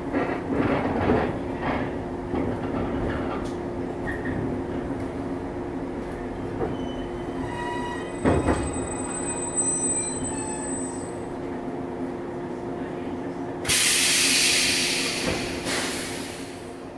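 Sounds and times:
faint high squealing tones: 6.7s - 11.3s.

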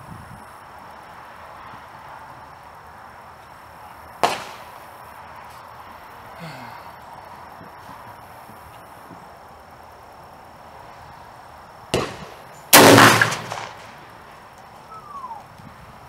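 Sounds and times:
shotgun shot: 4.2s - 4.7s, 11.9s - 14.0s.

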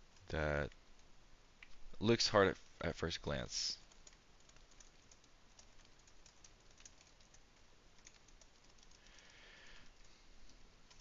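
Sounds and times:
typing on computer keyboard: 3.8s - 9.4s.

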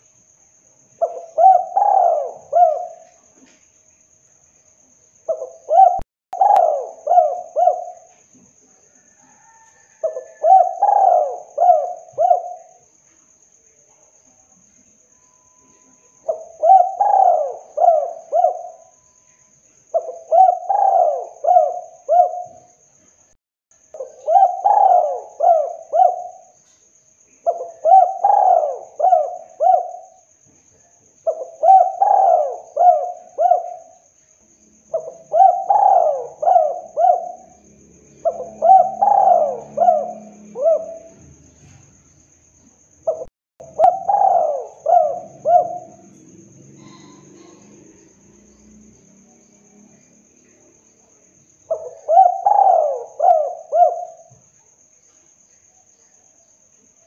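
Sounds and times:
dove cooing: 1.0s - 3.2s, 5.3s - 8.2s, 9.3s - 12.8s, 16.3s - 19.0s, 19.9s - 22.7s, 24.0s - 26.6s, 27.5s - 30.2s, 31.3s - 34.0s, 34.9s - 41.8s, 43.1s - 48.0s, 51.7s - 54.3s
faint high-pitched tone: 14.9s - 16.3s.

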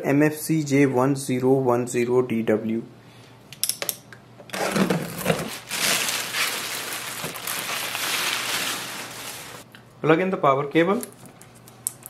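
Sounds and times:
plastic bag crinkling: 4.5s - 9.7s.

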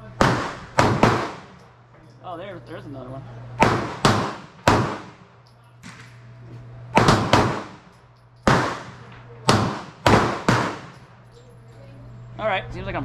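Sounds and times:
pistol shots: 0.2s - 1.7s, 3.6s - 6.2s, 7.0s - 11.1s.

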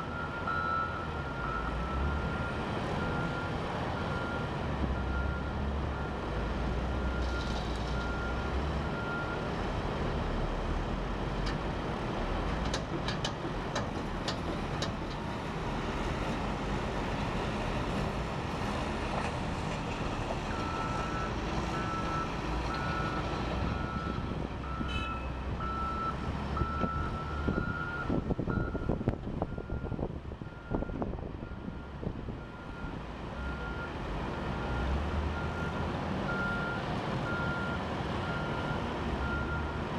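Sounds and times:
reversing alarm beeping: 0.1s - 3.4s.

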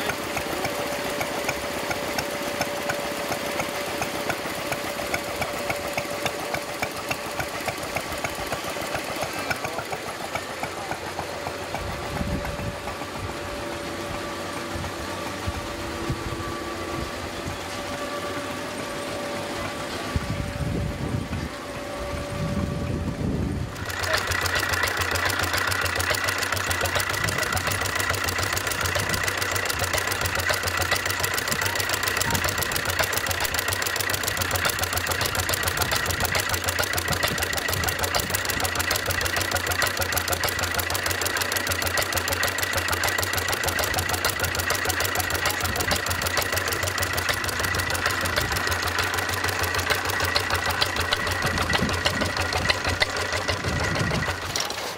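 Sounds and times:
steady high whine: 0.0s - 25.1s
stationary engine clattering: 0.0s - 54.9s
tractor engine idling: 0.0s - 54.9s.

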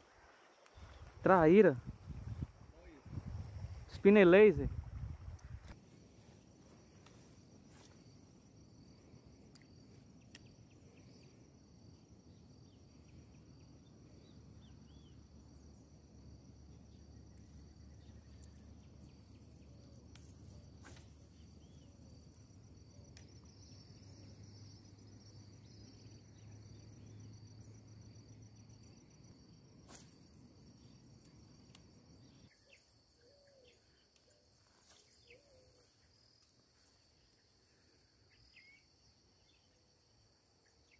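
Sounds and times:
high insect trill: 0.0s - 40.9s
faint bird chirps: 32.2s - 36.2s, 37.2s - 39.8s.

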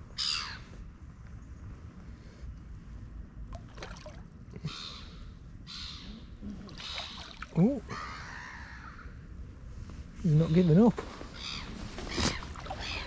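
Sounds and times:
fish splashing at the surface: 3.5s - 4.3s.

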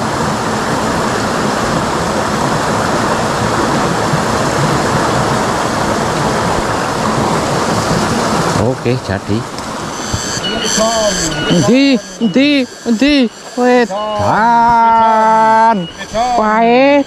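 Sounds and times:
river rushing over stones: 0.0s - 11.1s.

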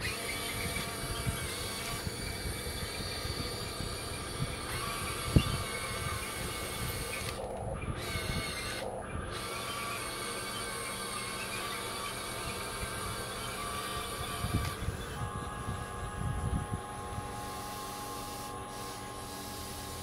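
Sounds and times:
toy excavator motors whirring: 0.0s - 20.0s.

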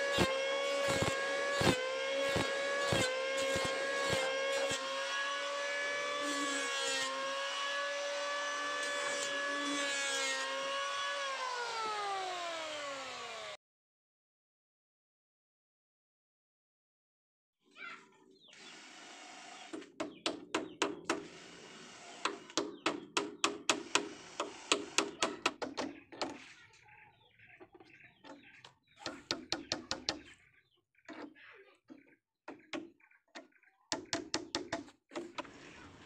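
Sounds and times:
hammer striking wooden planks: 22.2s - 26.4s, 29.0s - 30.2s, 33.9s - 35.4s.

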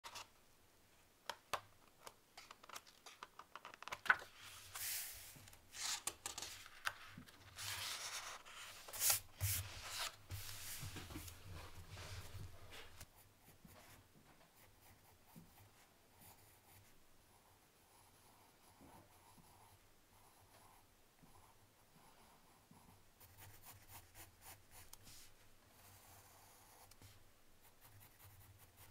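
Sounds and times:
paper rustling: 2.4s - 13.0s
hand sweeping across paper: 4.4s - 5.9s, 7.5s - 13.1s, 25.0s - 25.4s
pencil scratching on paper: 22.0s - 25.2s, 25.8s - 28.9s.

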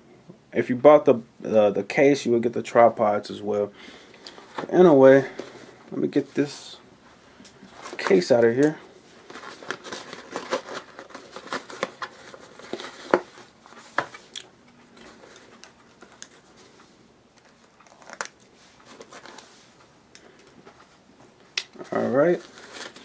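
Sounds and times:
plastic packaging crinkling and tearing: 7.7s - 14.4s, 17.4s - 19.4s, 21.7s - 23.0s.

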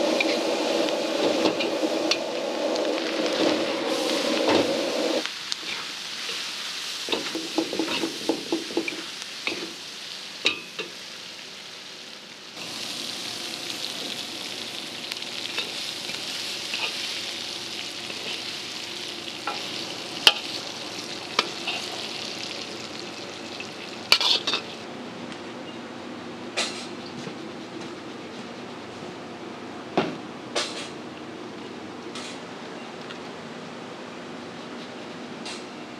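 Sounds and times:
fish sizzling in hot oil: 5.2s - 24.8s.

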